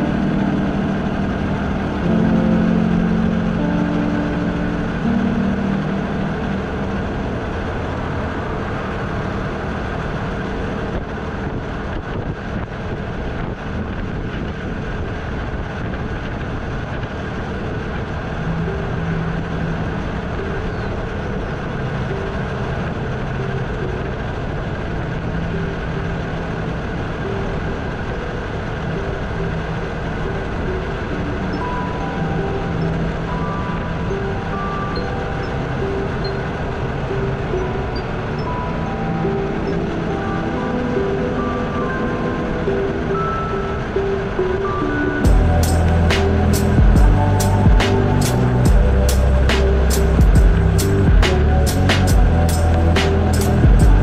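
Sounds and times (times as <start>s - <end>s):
road noise: 0.0s - 54.0s
motorcycle engine: 45.2s - 54.0s.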